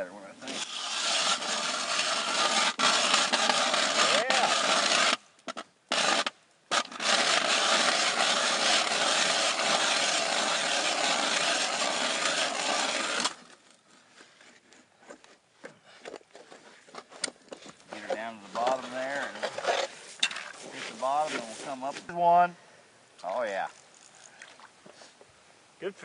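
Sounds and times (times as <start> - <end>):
ice auger scraping through ice: 0.4 - 13.7, 17.9 - 21.8.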